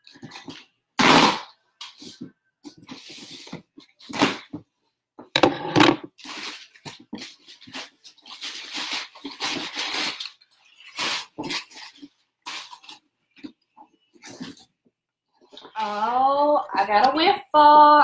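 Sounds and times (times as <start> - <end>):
paper and plastic rustling: 6.1 - 14.7.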